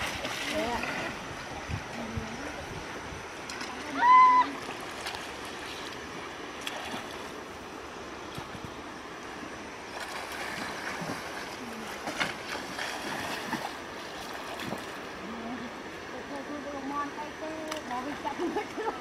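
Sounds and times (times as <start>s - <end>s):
sharp water splashes: 0.0s - 1.2s, 3.4s - 7.4s, 9.9s - 15.1s
water sloshing from wading: 0.0s - 19.0s.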